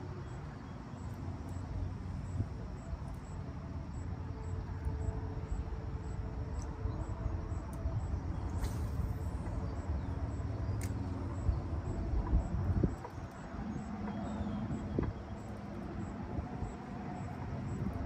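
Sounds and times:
faint insect chirping: 0.0 - 18.0
brief high hiss: 8.5 - 9.4.

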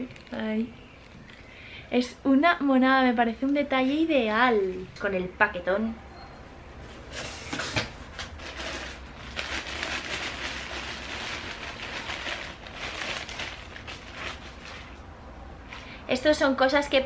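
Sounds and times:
plastic bags crinkling: 0.0 - 1.5, 8.2 - 15.1.

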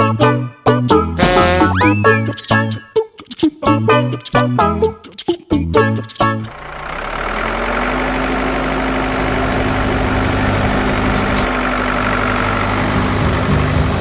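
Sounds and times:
diesel engine idling: 6.5 - 14.0.

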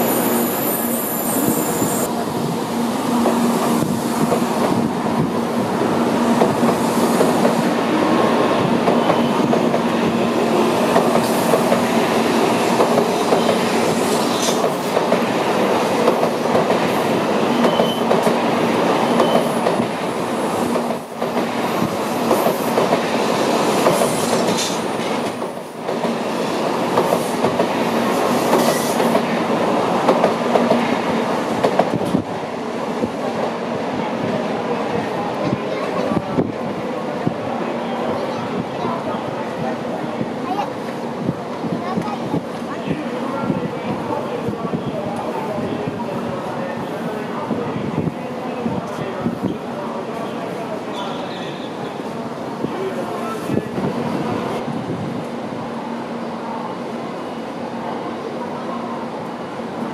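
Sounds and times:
train wheels rumbling on rails: 0.0 - 55.4.

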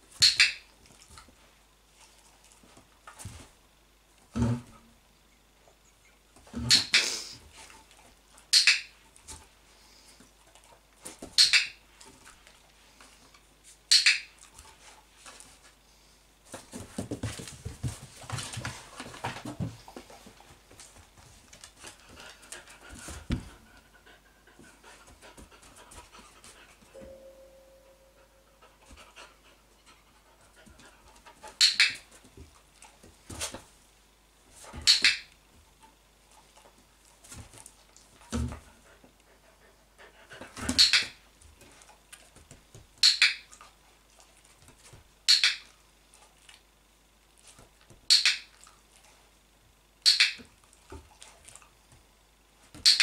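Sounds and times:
dog panting: 21.7 - 26.9, 28.2 - 31.6, 38.2 - 40.8
dog-training clicker clicks: 50.0 - 50.4.

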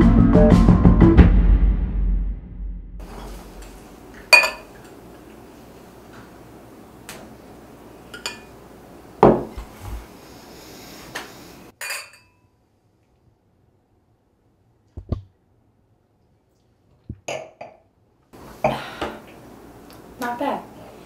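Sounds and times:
wine glasses clinking on wood: 4.3 - 4.9, 8.1 - 8.5, 11.8 - 12.4
heavy thump on table: 9.2 - 9.6.

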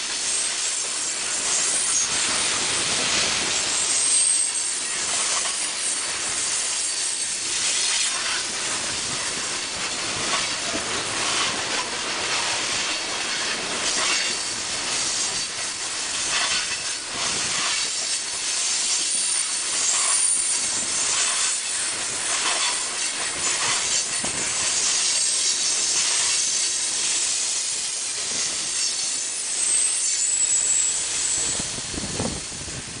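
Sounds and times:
train wheels rumbling on rail: 0.0 - 33.0
faint high wheel squeal: 3.5 - 8.6, 17.6 - 32.5.

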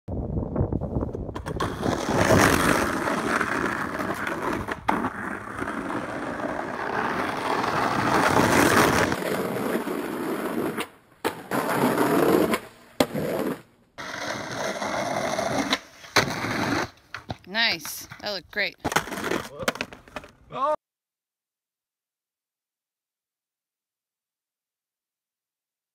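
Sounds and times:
skateboard wheels rolling on rock: 0.2 - 20.4
skateboard clacks: 18.8 - 20.4.

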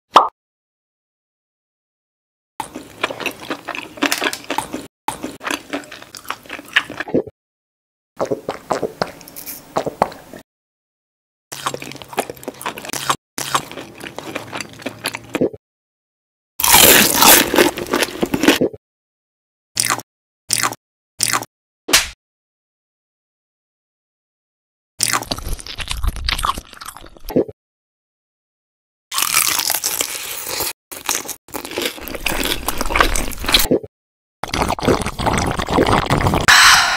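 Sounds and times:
eating bites chewing and crunching: 2.6 - 7.1, 11.5 - 15.5, 16.6 - 18.7, 19.8 - 21.5, 25.0 - 27.3, 29.1 - 33.7, 34.4 - 36.9.

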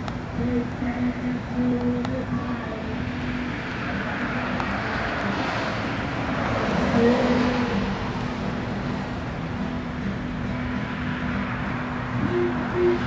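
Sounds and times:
low background hum: 0.0 - 5.3
road vehicle passing: 0.0 - 13.0.

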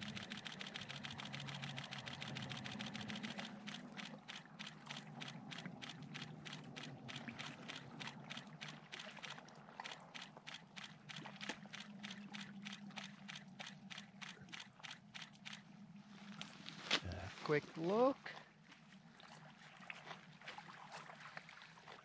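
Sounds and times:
camera shutter burst: 0.0 - 15.6
low steady hum: 0.0 - 19.3.

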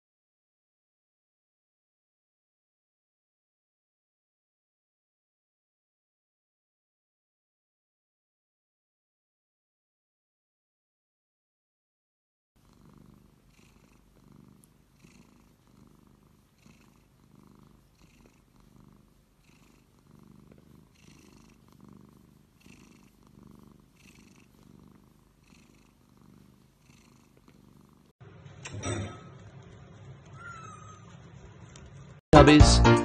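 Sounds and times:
cat purring: 12.6 - 28.2.

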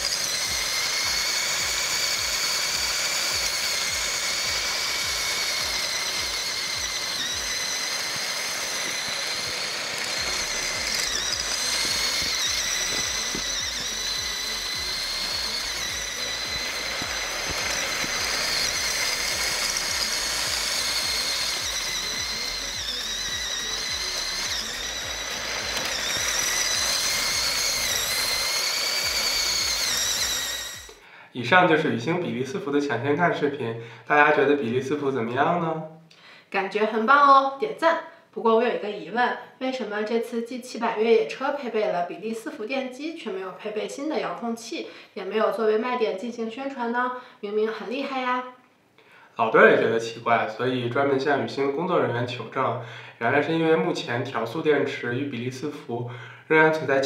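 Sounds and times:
toy truck motors whining: 0.0 - 31.1.

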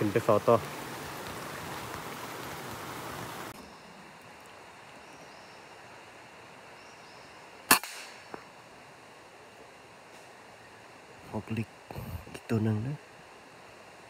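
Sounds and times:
rifle shot: 7.7 - 8.3.

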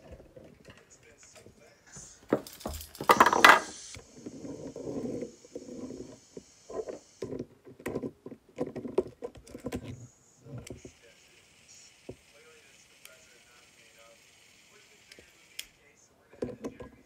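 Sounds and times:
plastic toy parts clattering: 2.3 - 3.8
small plastic clicks and knocks: 6.7 - 10.0, 16.4 - 17.0.

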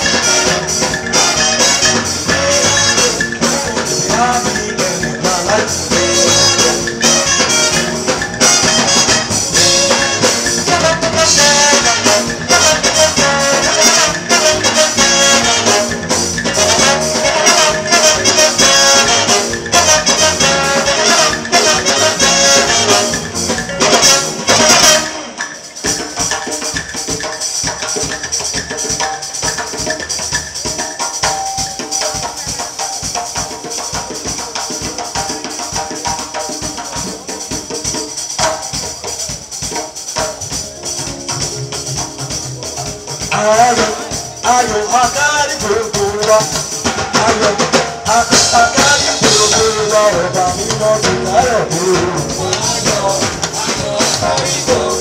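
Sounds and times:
drums and percussion: 0.0 - 55.0
live band with horn section: 0.0 - 55.0.

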